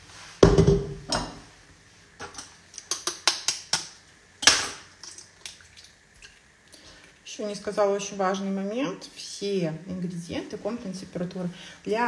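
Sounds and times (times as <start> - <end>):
eggs cracking against bowl: 2.3 - 7.2.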